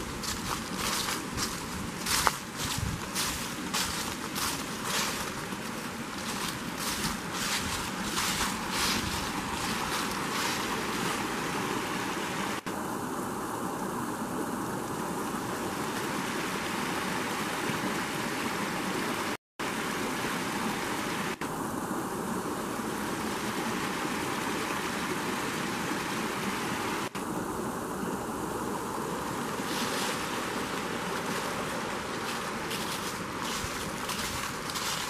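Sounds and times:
brook splashing over stones: 0.0s - 12.7s, 22.8s - 27.2s, 29.1s - 35.0s.

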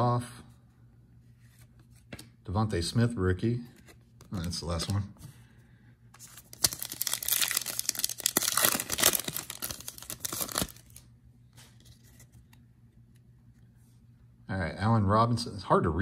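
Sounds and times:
plastic wrapper tearing and crinkling: 6.2s - 11.0s.

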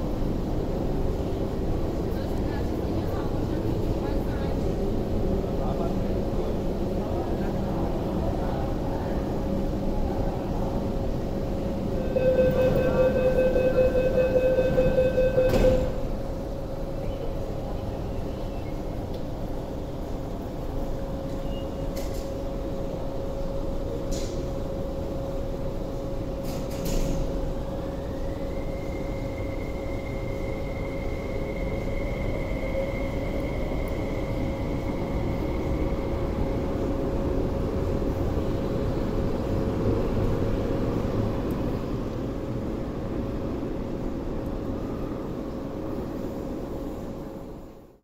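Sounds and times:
electric train rumbling: 0.0s - 48.0s
steady hum: 11.7s - 16.4s.

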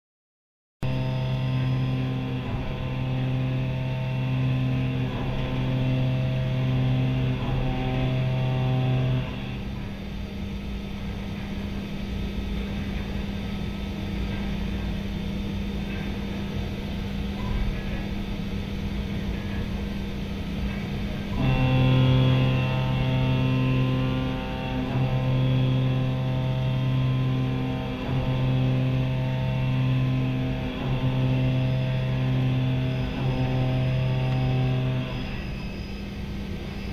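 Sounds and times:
machine humming: 0.8s - 36.9s
milling machine cutting metal: 0.9s - 10.1s, 20.5s - 36.9s.

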